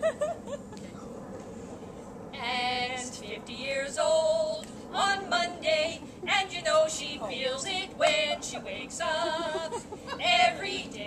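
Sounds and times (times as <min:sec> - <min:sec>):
women singing together: 0:02.4 - 0:11.0.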